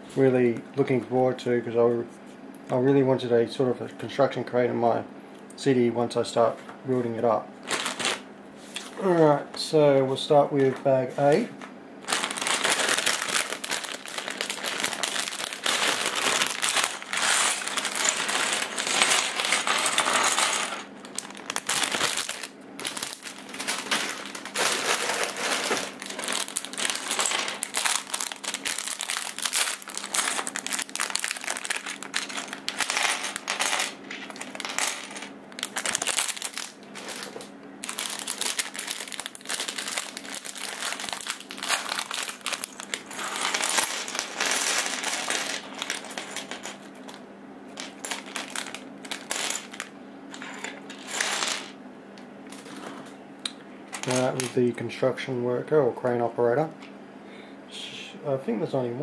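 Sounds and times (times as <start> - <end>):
plastic bag crinkling: 7.6 - 8.2, 12.0 - 47.2, 47.8 - 49.9
plastic bricks clattering on table: 12.3 - 40.0, 40.9 - 47.2, 47.8 - 51.7.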